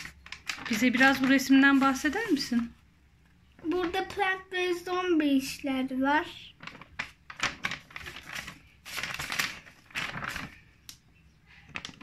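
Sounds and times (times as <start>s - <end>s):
paper rustling and crinkling: 0.0s - 2.7s, 6.5s - 12.0s.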